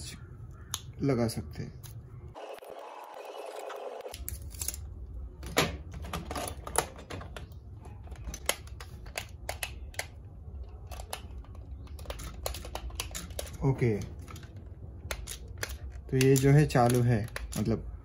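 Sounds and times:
sharp plastic clicks and taps: 14.2s - 17.8s.

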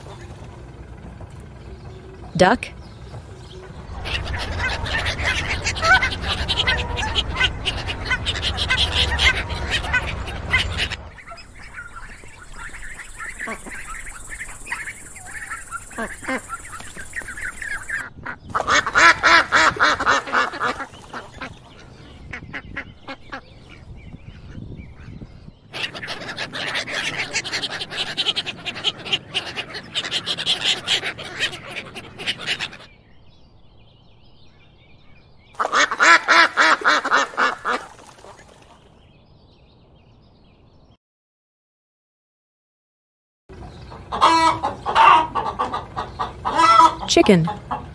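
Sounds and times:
ducks quacking: 3.4s - 33.0s, 35.6s - 39.0s, 43.5s - 47.9s.

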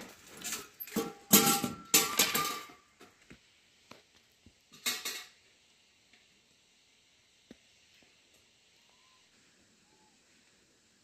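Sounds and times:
metal objects clattering: 0.0s - 2.9s, 4.7s - 5.4s.

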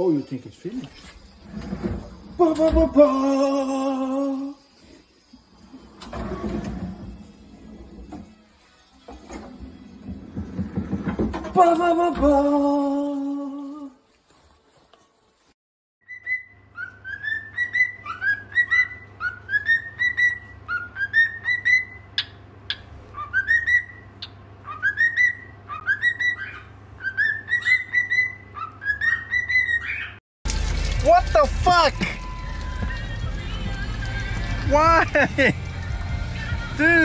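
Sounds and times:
cockatiel whistling: 16.0s - 30.2s.

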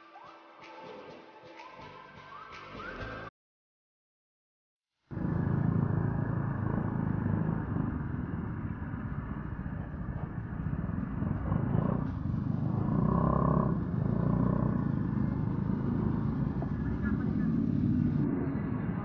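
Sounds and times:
scooter engine running: 5.1s - 18.2s
road rumble: 5.1s - 19.0s.

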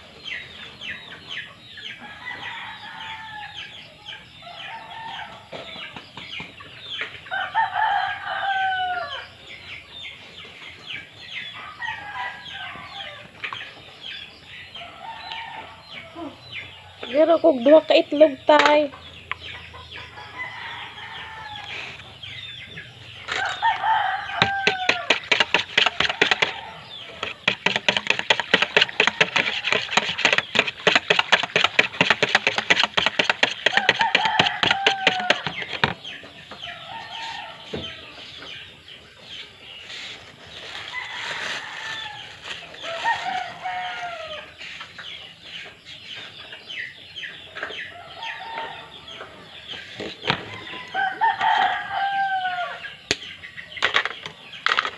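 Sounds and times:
rooster crowing: 2.0s - 3.7s, 7.3s - 9.2s, 11.6s - 13.2s, 20.1s - 22.0s, 23.3s - 27.4s, 32.7s - 35.9s, 36.7s - 38.2s, 40.7s - 44.8s, 48.0s - 49.3s, 50.4s - 53.0s
whisk beating batter in bowl: 24.4s - 26.6s, 27.2s - 35.9s.

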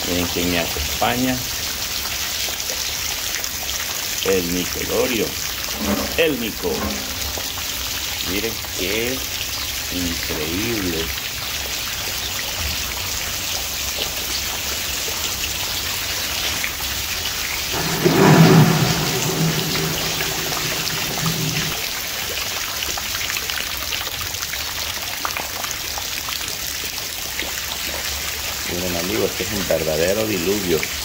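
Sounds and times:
low hum: 5.7s - 7.7s, 17.7s - 21.8s.

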